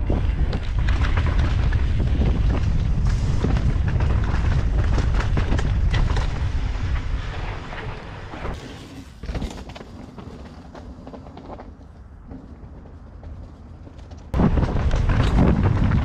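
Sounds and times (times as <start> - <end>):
wind buffeting microphone: 0.0 - 8.6, 14.3 - 16.0
bike clicks and rattles: 0.0 - 16.0
bike tyres rumbling on dirt: 0.0 - 16.0.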